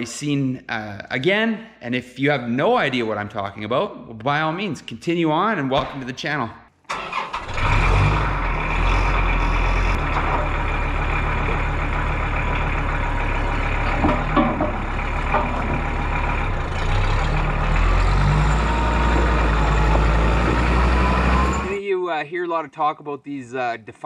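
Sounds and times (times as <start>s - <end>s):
diesel tractor engine running: 6.9s - 21.8s
hydraulics squeaking: 9.0s - 21.8s.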